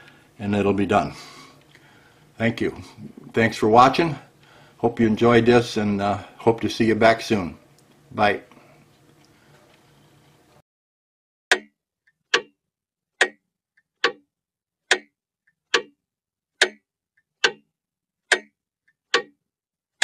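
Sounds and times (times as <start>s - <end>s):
mechanical clock ticking: 11.5s - 11.7s, 12.3s - 12.6s, 13.2s - 13.4s, 14.0s - 14.3s, 14.9s - 15.1s, 15.7s - 16.0s, 16.6s - 16.8s, 17.4s - 19.4s.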